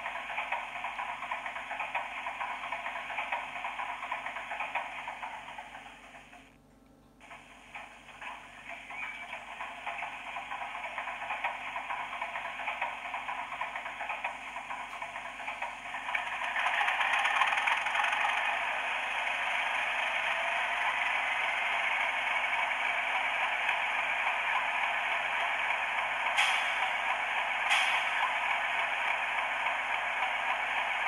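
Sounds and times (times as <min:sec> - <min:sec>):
diesel engine through small speaker: 0:07.2 - 0:31.0.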